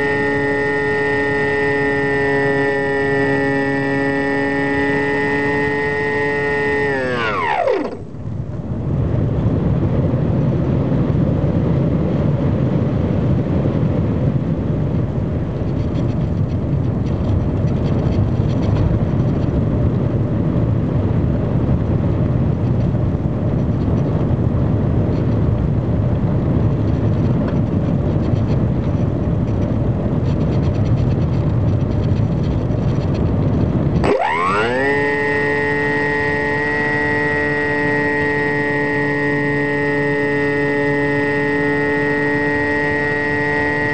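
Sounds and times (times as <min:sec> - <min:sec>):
model airplane motor whining: 0:00.0 - 0:08.6, 0:27.0 - 0:43.9.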